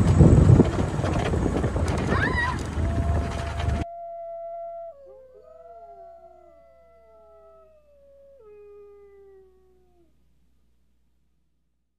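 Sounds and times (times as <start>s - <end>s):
animal howls: 2.0s - 10.2s.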